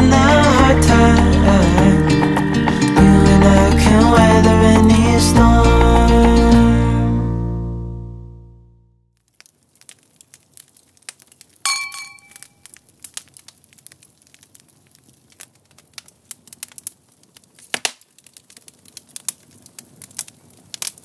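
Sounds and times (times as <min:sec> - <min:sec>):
wood fire crackling: 0:00.0 - 0:06.9, 0:09.2 - 0:21.0
glass clinking: 0:11.7 - 0:12.6.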